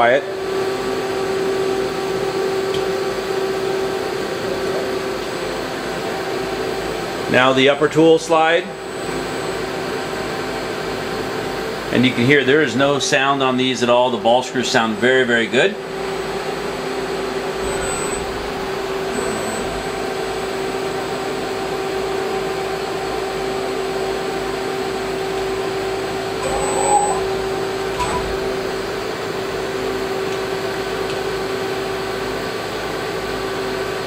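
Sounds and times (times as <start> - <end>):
lathe humming drone: 15.8 - 21.8, 25.2 - 30.4.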